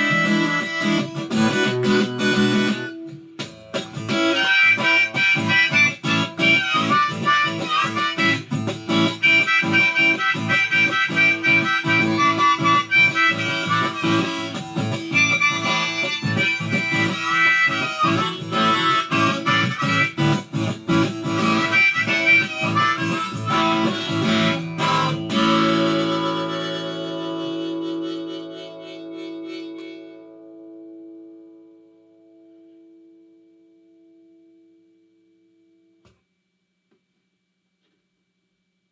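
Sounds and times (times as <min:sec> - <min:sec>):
harmonica bending notes: 0:00.0 - 0:31.1
acoustic guitar strumming: 0:00.0 - 0:33.2.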